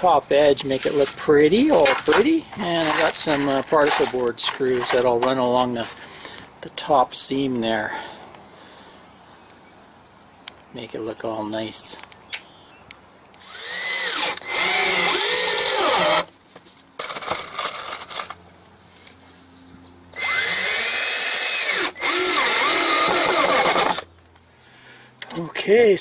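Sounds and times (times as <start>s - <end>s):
cordless drill driving screws: 1.8s - 5.2s, 13.4s - 16.3s, 20.2s - 24.1s.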